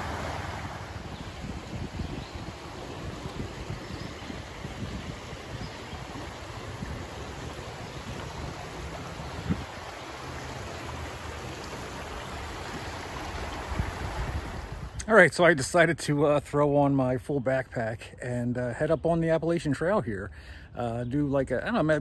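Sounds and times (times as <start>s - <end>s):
creek babbling over rocks: 0.0s - 15.0s.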